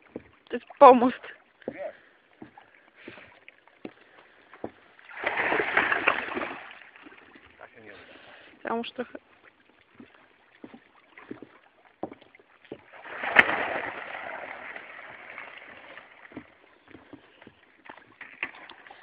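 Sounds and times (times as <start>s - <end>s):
water splash: 5.0s - 7.4s, 12.8s - 16.7s.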